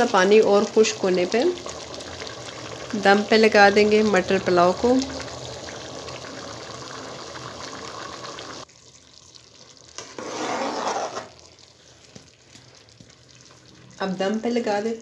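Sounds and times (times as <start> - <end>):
pot boiling and bubbling: 0.0 - 15.0
ladle stirring wet rice: 9.9 - 13.8.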